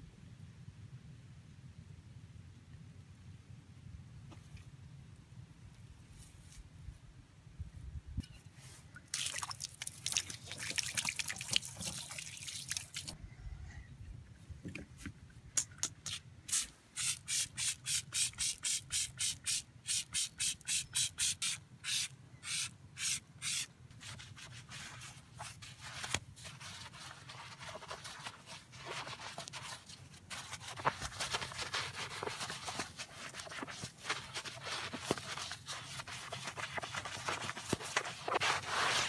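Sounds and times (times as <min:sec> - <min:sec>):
spray bottle hissing: 0:16.5 - 0:23.7.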